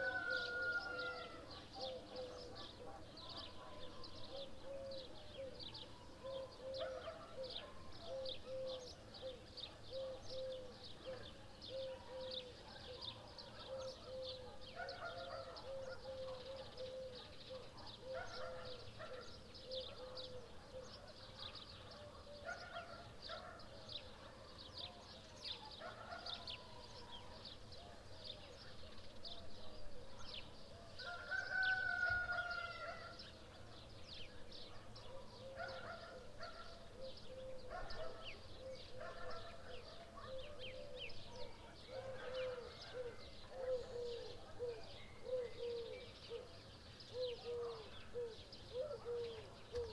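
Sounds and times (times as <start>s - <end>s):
rooster crowing: 0.0s - 1.4s, 31.0s - 33.1s
small birds chirping: 0.0s - 49.9s.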